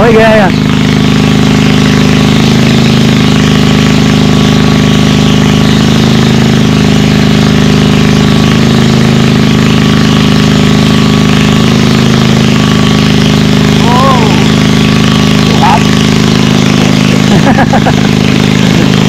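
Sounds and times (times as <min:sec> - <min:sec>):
water pump engine running: 0:00.0 - 0:19.0.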